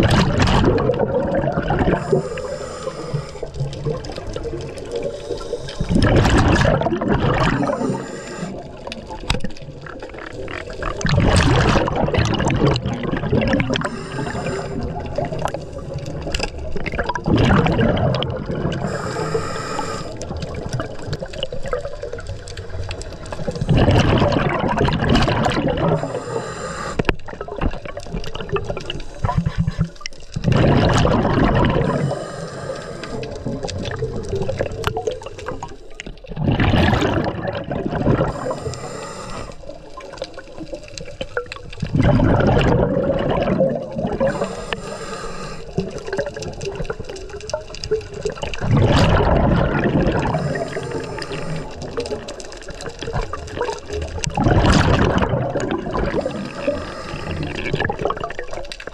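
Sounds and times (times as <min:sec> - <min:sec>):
exhaled bubbles rushing: 0:00.0 - 0:58.9
regulator inhalation hiss: 0:02.0 - 0:03.6, 0:05.0 - 0:05.9, 0:07.6 - 0:08.8, 0:13.8 - 0:16.2, 0:18.8 - 0:20.2, 0:26.0 - 0:27.1, 0:31.8 - 0:33.4, 0:38.3 - 0:39.8, 0:44.2 - 0:45.8, 0:50.3 - 0:52.0, 0:56.2 - 0:57.6.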